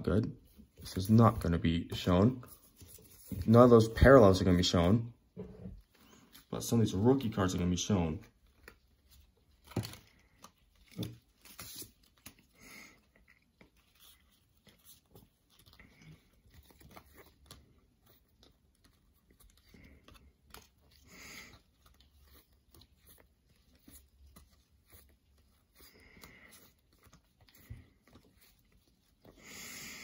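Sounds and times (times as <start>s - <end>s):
trading cards rustling and clicking: 5.8s - 29.4s.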